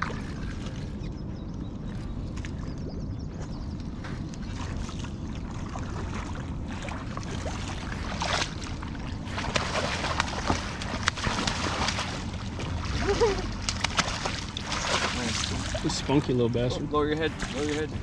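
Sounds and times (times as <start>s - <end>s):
steady low rumble: 0.0s - 18.0s
fish thrashing and splashing: 4.4s - 16.5s.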